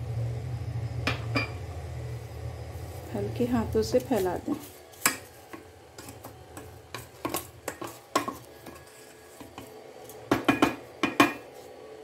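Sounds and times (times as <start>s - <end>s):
spatula scraping a metal pot: 4.0s - 10.2s.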